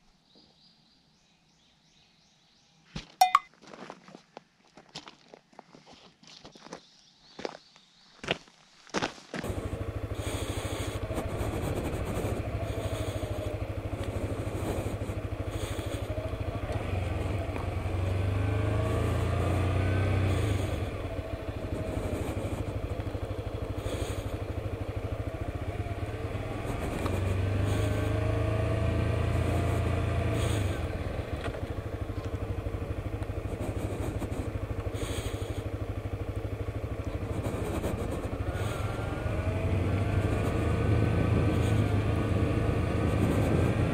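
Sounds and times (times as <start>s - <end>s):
motorcycle engine running: 9.3s - 43.9s.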